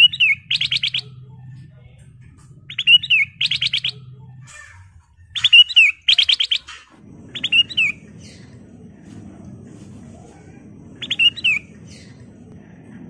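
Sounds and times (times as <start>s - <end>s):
bird singing whistled phrases: 0.0s - 1.1s, 2.7s - 4.1s, 5.3s - 6.7s, 7.4s - 8.0s, 11.0s - 12.1s.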